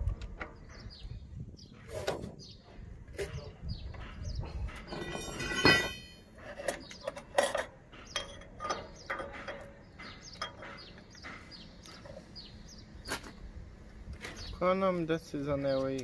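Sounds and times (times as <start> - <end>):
metallic scrape: 4.7 - 9.7
metal parts and tools clinking: 4.7 - 10.8.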